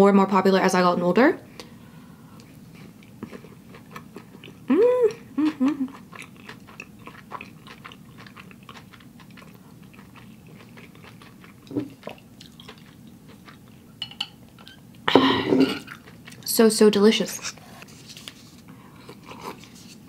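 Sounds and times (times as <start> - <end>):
chewing: 2.4 - 13.9, 15.8 - 16.5, 18.9 - 19.8
person humming: 4.7 - 6.0.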